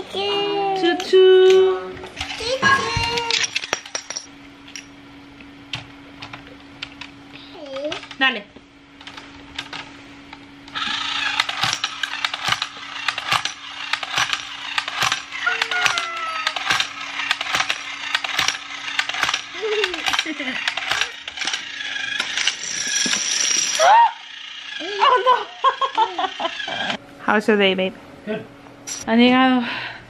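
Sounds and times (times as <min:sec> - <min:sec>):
toy train running on wooden floor: 0:10.8 - 0:24.8.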